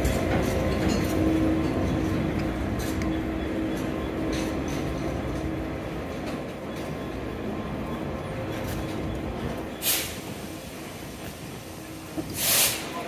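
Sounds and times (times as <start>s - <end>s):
train rumbling: 0.0s - 13.0s
short hiss: 12.4s - 12.9s.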